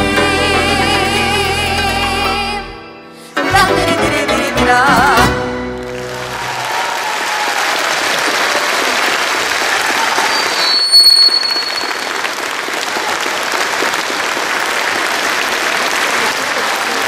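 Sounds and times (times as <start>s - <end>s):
audience applauding: 5.6s - 17.0s
high-pitched whistle: 10.2s - 12.2s.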